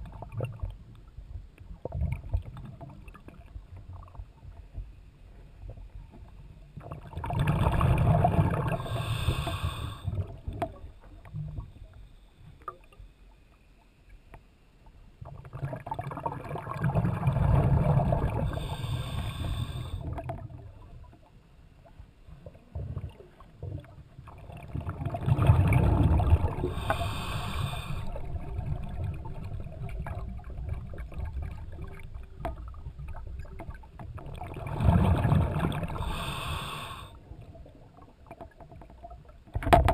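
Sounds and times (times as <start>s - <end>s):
exhaled bubbles underwater: 0.0s - 0.8s, 1.7s - 4.8s, 5.6s - 12.0s, 15.2s - 39.9s
regulator hiss: 8.8s - 10.1s, 26.7s - 28.2s, 36.0s - 37.2s.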